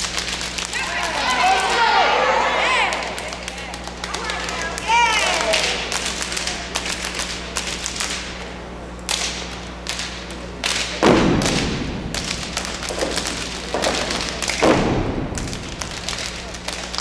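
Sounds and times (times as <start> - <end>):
claps and stomps in unison: 2.8 - 8.3, 9.1 - 17.0
heavy thump: 11.0 - 15.8.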